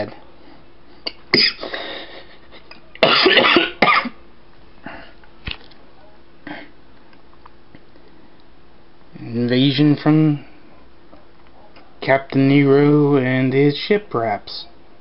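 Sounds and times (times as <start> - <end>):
person coughing: 1.1 - 2.3, 3.0 - 4.2.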